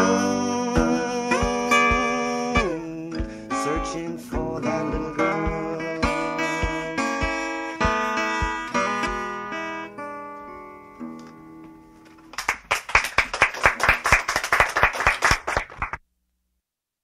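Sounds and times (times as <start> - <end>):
acoustic guitar notes ringing: 0.0 - 12.3
hand clapping: 12.2 - 16.0.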